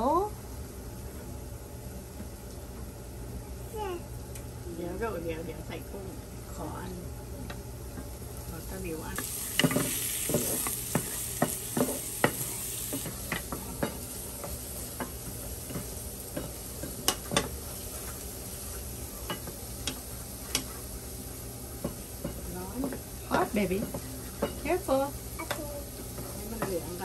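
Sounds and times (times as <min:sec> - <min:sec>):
garlic sizzling in oil: 0:07.4 - 0:27.0
spatulas knocking on pan: 0:09.1 - 0:17.6, 0:21.8 - 0:24.9, 0:26.2 - 0:27.0.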